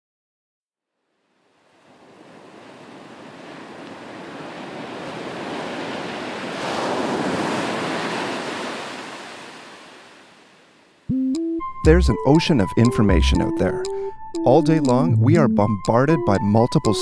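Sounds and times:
ocean surf rushing: 1.5s - 11.1s.

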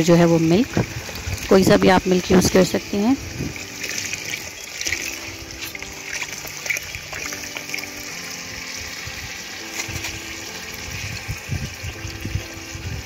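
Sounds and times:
milk pouring into metal pot: 3.5s - 10.1s.

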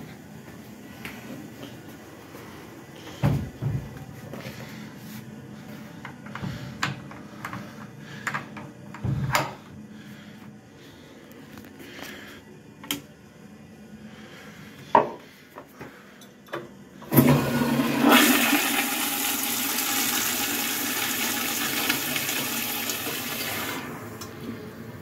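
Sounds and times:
toilet flushing: 17.0s - 25.0s.

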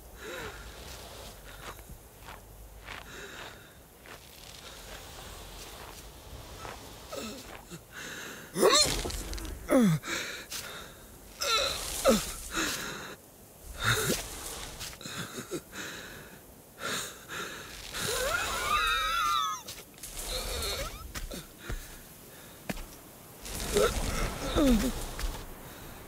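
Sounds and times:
falling groans: 0.1s - 15.3s, 23.4s - 26.0s.

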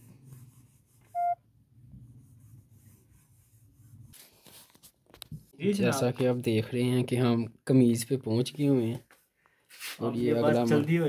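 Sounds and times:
short electronic beep: 1.2s - 1.4s.

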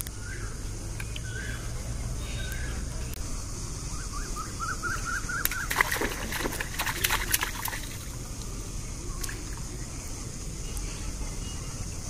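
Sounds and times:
fish splashing in water: 5.3s - 9.8s.

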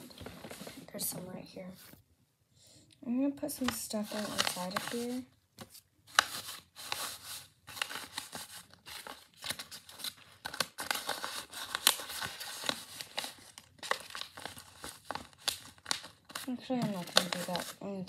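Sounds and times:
paper rustling and crackling: 0.0s - 1.2s, 3.5s - 18.0s.

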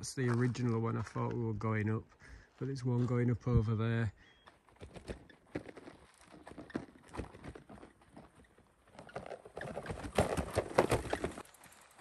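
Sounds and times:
bike and panniers rattling: 4.2s - 12.0s
tyres clattering on stones: 9.0s - 12.0s.

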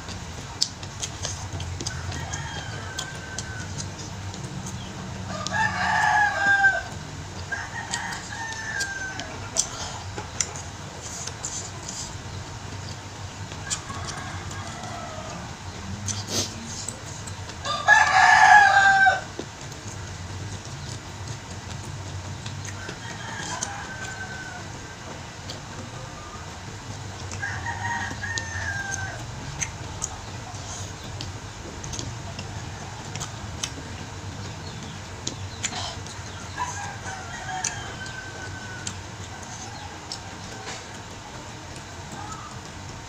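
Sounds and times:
rooster crowing: 1.8s - 4.1s, 5.0s - 10.0s, 13.6s - 15.9s, 17.6s - 19.4s, 22.7s - 25.1s, 27.4s - 29.7s, 35.8s - 41.4s.

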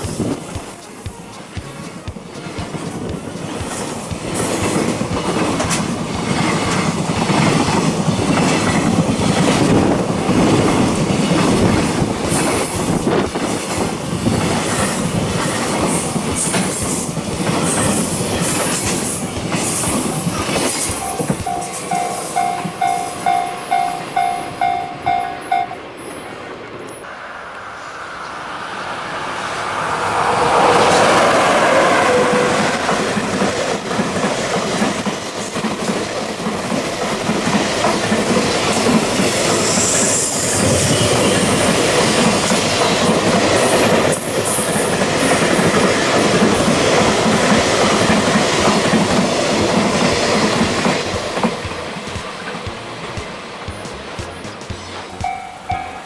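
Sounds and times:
freight train rumbling past: 0.0s - 56.0s
level crossing bell ringing: 21.0s - 26.0s, 55.2s - 56.0s.

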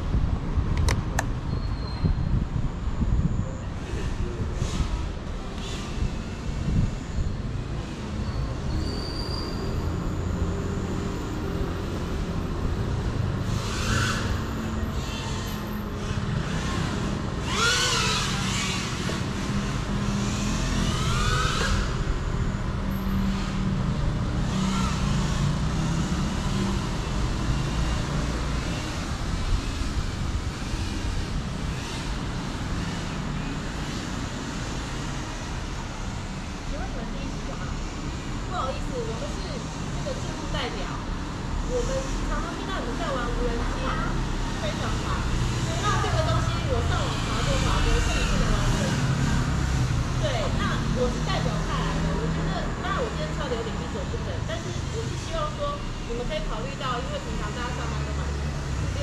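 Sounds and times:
drone motors whining: 13.5s - 23.6s, 24.2s - 28.0s.

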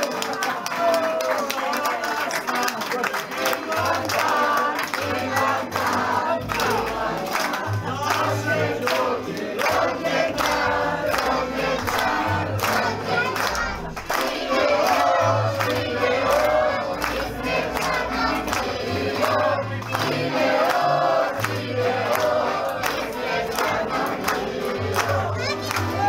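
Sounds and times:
crowd singing together: 0.0s - 26.0s
people clapping in time: 0.0s - 26.0s.

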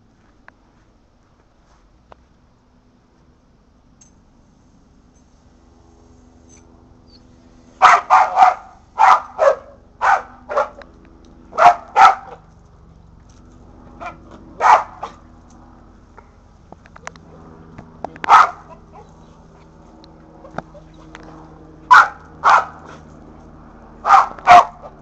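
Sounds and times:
dog barking excitedly: 7.8s - 10.8s, 11.5s - 12.5s, 14.0s - 15.2s, 18.2s - 19.1s, 21.9s - 23.0s, 24.0s - 25.0s.

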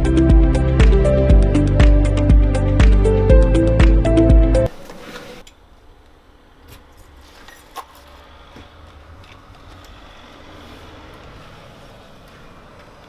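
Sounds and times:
distant traffic rumble: 5.6s - 13.0s.

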